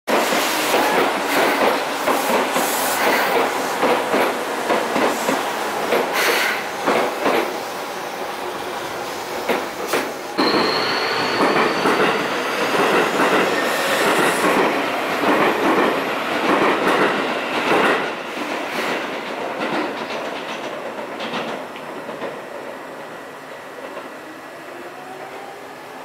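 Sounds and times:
train wheels clattering over rails: 0:00.1 - 0:07.6, 0:09.4 - 0:22.7
high wheel squeal: 0:10.4 - 0:12.6.

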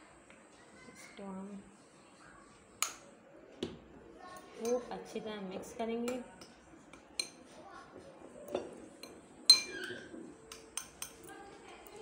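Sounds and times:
spoon scraping ceramic bowl: 0:08.5 - 0:11.2.

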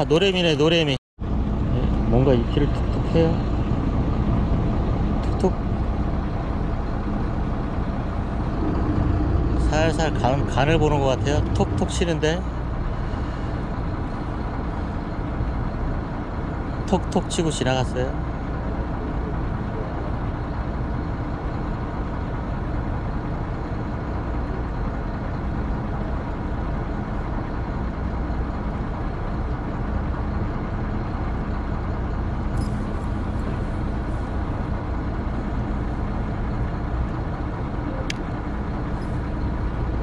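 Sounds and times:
boat engine rumbling: 0:00.0 - 0:40.0.

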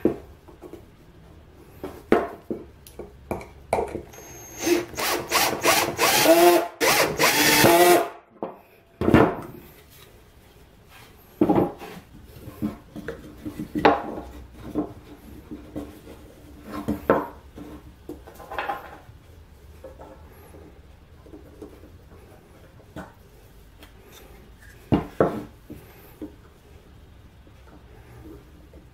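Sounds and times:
cordless drill whining: 0:04.2 - 0:08.0.

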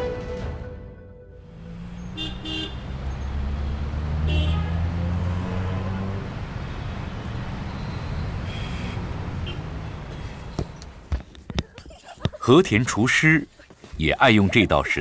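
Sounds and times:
vehicle engines running: 0:01.4 - 0:15.0
car horn toots: 0:02.1 - 0:03.0, 0:04.2 - 0:05.8.

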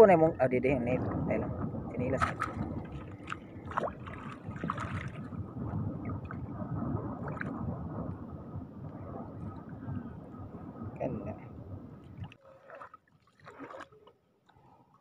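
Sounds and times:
small water splashes: 0:02.0 - 0:05.4, 0:12.0 - 0:15.0
water sloshing around legs: 0:02.2 - 0:05.4, 0:12.0 - 0:14.7.

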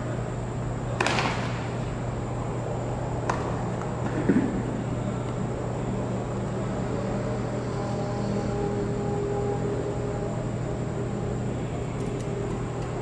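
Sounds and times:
steady low hum: 0:00.0 - 0:13.0
tennis ball impacts echoing: 0:01.0 - 0:01.7.

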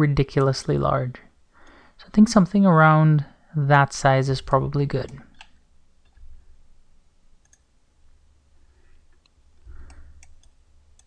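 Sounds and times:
low steady hum: 0:00.0 - 0:11.0
computer mouse clicks: 0:07.4 - 0:07.7, 0:09.1 - 0:11.0.

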